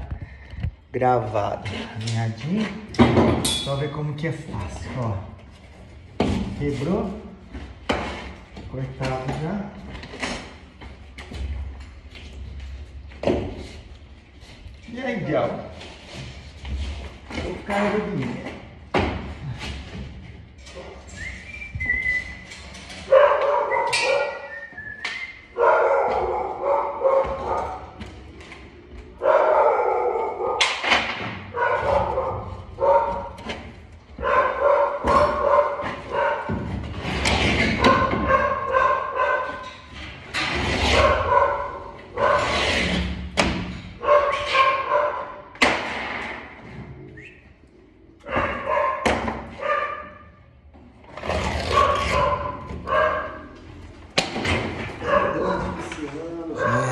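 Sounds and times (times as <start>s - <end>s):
dog barking howl-like: 25.6s - 27.9s, 29.2s - 30.7s.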